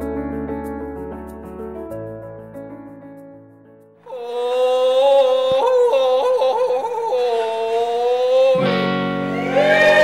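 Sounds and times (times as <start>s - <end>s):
soft keyboard chords music: 0.0s - 5.9s, 8.2s - 10.0s.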